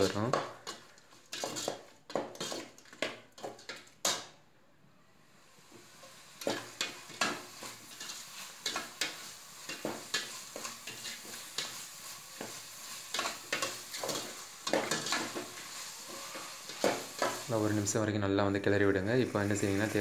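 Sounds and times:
sizzle of frying: 0:00.0 - 0:04.4, 0:05.3 - 0:20.0
metal spoon scraping a pot: 0:00.6 - 0:02.8.

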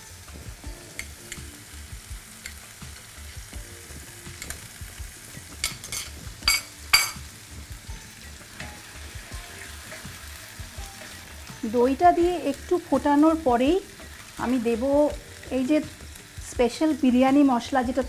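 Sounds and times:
chicken sizzling in oil: 0:00.0 - 0:18.0
spoon clinking on glass bowl: 0:05.6 - 0:07.2.

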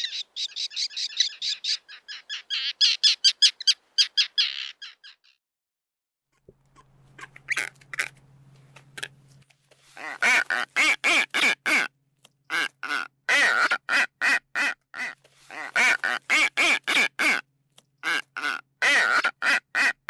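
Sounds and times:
gull calling: 0:00.0 - 0:05.4.

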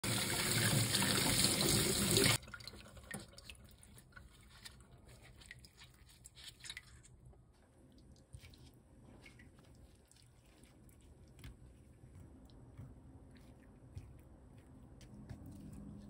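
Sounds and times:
faint water drips: 0:02.3 - 0:12.6
hands handling wet meat: 0:02.6 - 0:16.0.

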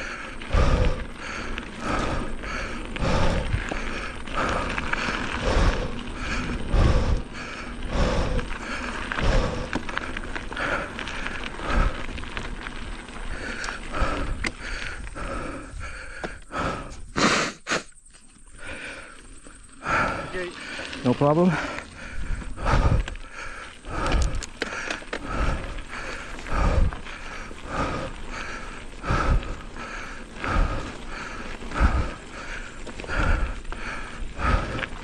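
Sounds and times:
mountain bike on dirt trail: 0:00.0 - 0:35.0
rider breathing hard: 0:00.0 - 0:35.0.

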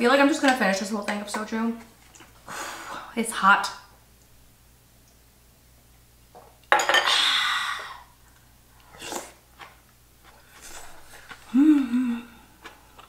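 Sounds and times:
small eating sounds: 0:01.8 - 0:02.5, 0:08.1 - 0:13.0
slurping stew from spoon: 0:08.8 - 0:09.4
person humming mmm: 0:11.4 - 0:12.6.

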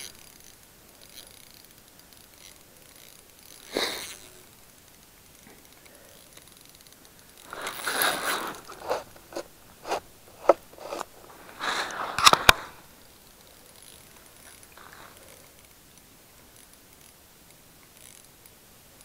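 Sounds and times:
crunching in packed snow: 0:07.5 - 0:12.8.

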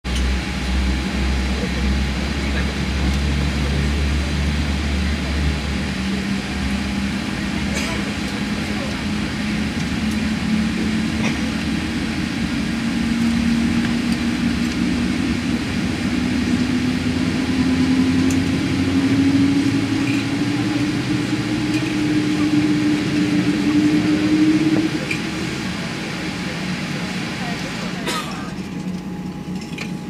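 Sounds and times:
jet engine winding up: 0:03.0 - 0:30.0.

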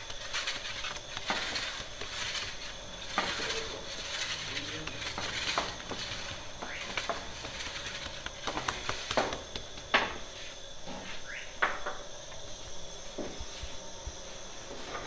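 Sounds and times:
hands slapping dough: 0:07.1 - 0:10.2.

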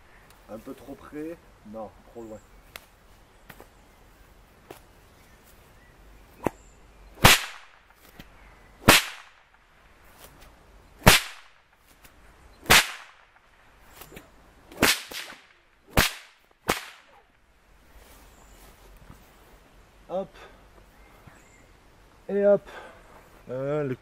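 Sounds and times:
whip cracking: 0:07.2 - 0:09.6, 0:11.0 - 0:11.6, 0:12.6 - 0:17.3.

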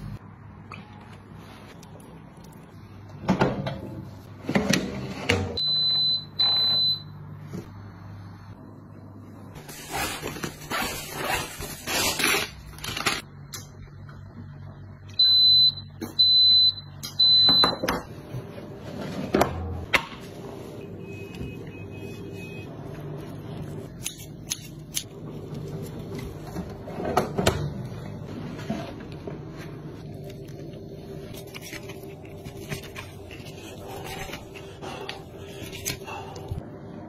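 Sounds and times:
electric oven beeping: 0:05.3 - 0:07.7, 0:14.6 - 0:18.5, 0:20.4 - 0:23.9
oven running hum: 0:12.5 - 0:37.0.

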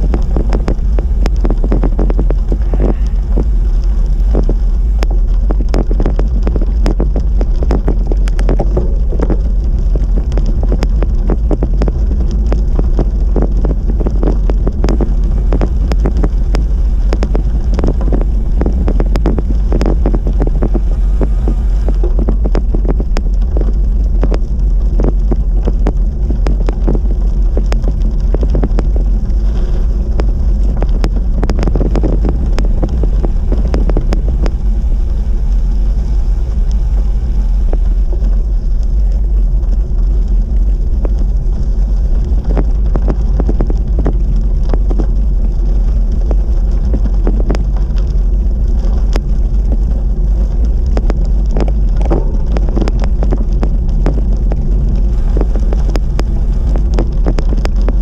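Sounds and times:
bike tyres rolling on gravel: 0:00.0 - 0:58.0
wind buffeting microphone: 0:00.0 - 0:58.0
sharp ticks and knocks: 0:04.2 - 0:35.2, 0:48.8 - 0:58.0.

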